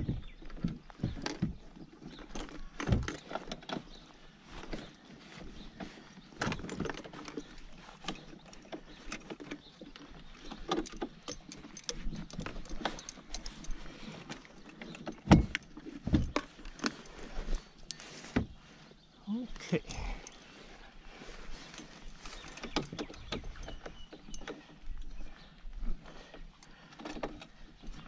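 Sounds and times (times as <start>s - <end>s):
metal bracket clicks and rattles: 6.4s - 17.1s.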